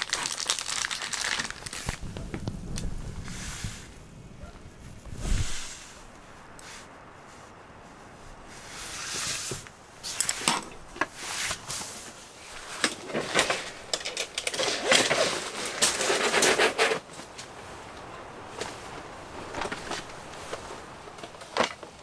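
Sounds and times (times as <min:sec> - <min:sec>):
camping gear rustling: 0:00.0 - 0:22.0
camping gear clicking: 0:09.0 - 0:22.0.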